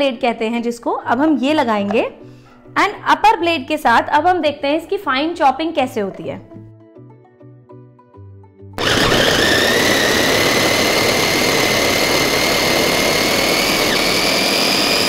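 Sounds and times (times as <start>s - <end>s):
electric chopper motor whining: 8.8s - 15.0s.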